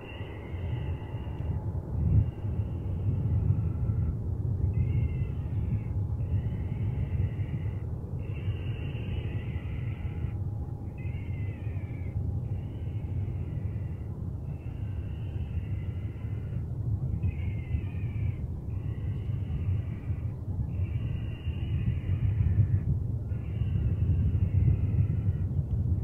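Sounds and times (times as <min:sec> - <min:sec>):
steady low rumble: 0:00.0 - 0:26.0
animal harsh calls: 0:04.8 - 0:16.6, 0:17.3 - 0:25.3.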